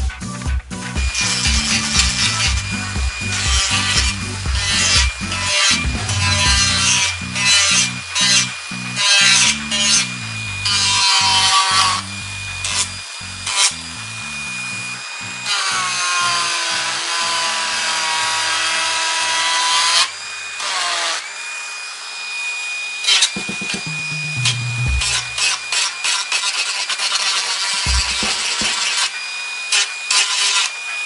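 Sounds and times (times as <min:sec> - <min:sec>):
rotary tool whining: 0:01.0 - 0:31.0.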